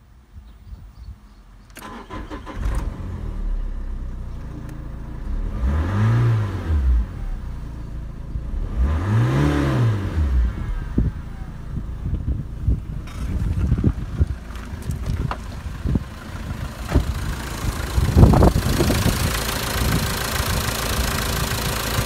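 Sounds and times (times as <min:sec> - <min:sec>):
starter motor cranking: 0:01.8 - 0:02.9
diesel engine idling and revving: 0:01.8 - 0:22.0.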